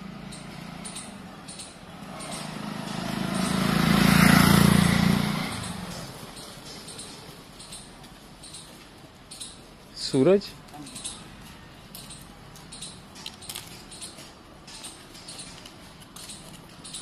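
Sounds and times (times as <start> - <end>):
vehicle driving past: 0.0 - 8.6.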